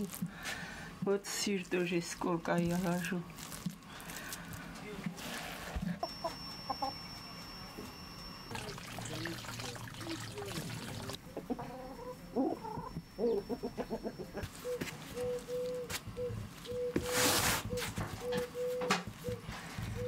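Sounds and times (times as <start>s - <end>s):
chickens clucking: 6.0s - 7.1s, 11.2s - 20.0s.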